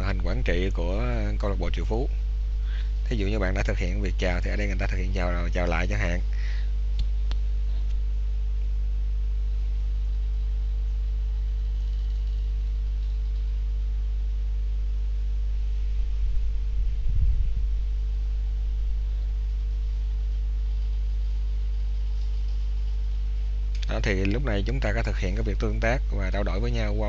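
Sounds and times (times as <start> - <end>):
low electrical hum: 0.0 - 27.0
low rumbling bumps: 15.6 - 20.0.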